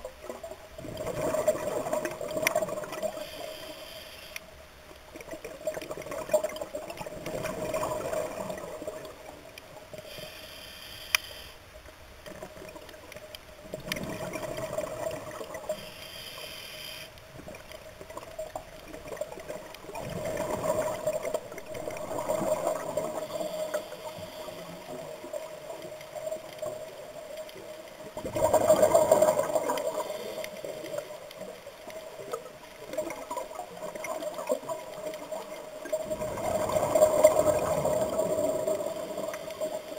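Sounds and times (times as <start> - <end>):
hissing regulator inhalations: 3.1 - 4.5, 10.0 - 11.6, 15.7 - 17.2.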